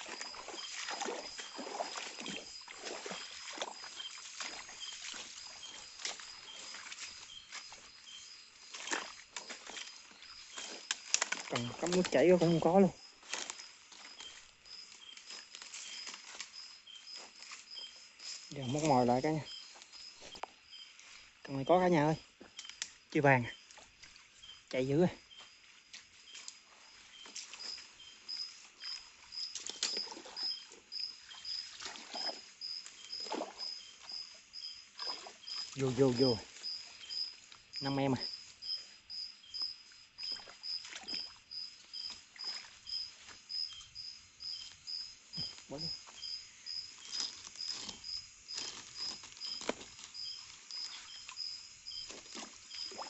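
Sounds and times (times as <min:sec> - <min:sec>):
fish thrashing and splashing in water: 0:00.0 - 0:07.8, 0:08.7 - 0:12.4, 0:29.6 - 0:34.0, 0:34.9 - 0:35.8, 0:52.0 - 0:53.0
splashing through shallow water: 0:00.0 - 0:20.4, 0:22.7 - 0:53.0
night insects chirping: 0:00.0 - 0:53.0.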